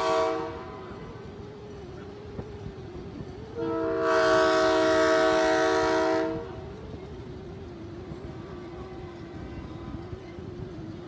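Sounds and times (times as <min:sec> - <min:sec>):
locomotive air horn chord: 0:00.0 - 0:01.1, 0:03.5 - 0:06.6.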